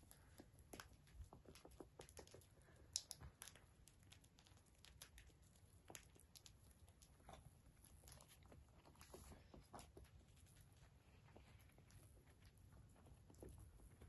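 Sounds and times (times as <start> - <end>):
birds pecking on carpet: 0.0 - 14.0.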